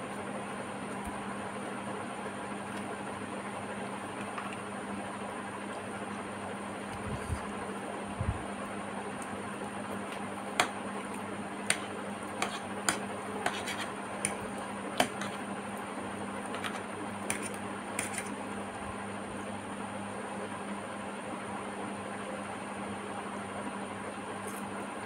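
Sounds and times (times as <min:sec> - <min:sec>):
faint hum: 0:00.0 - 0:25.0
fork scraping ceramic plate: 0:12.4 - 0:14.4, 0:15.0 - 0:15.4, 0:16.5 - 0:18.3.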